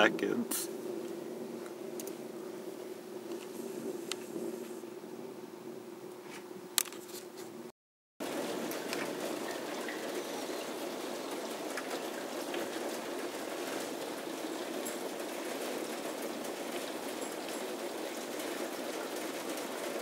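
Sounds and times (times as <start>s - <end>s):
heavy rain hissing: 0.0s - 5.1s, 8.2s - 20.0s
raindrop ticks: 1.0s - 2.2s, 8.3s - 20.0s.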